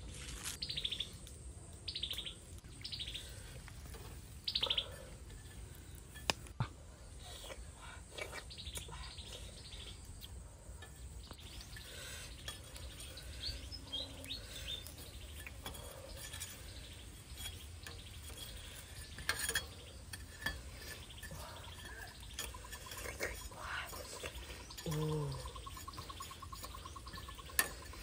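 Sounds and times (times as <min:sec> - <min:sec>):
birds chirping: 0:00.4 - 0:28.0
metal spatula scraping grill rack: 0:03.3 - 0:06.4, 0:10.0 - 0:28.0.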